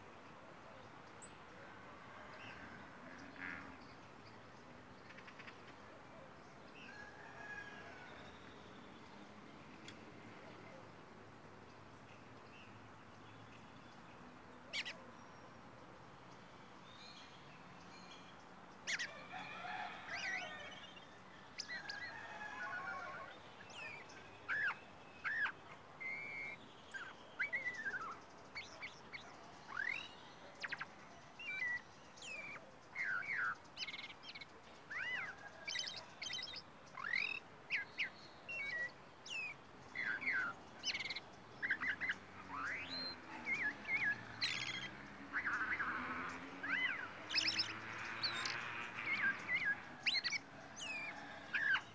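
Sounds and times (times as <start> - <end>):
songbird singing: 0.0 - 51.9.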